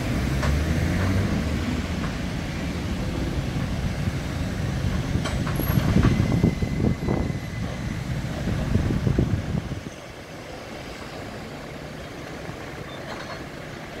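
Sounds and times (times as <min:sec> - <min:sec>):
diesel engine running: 0:00.0 - 0:14.0
knocks and clatter: 0:04.8 - 0:07.8.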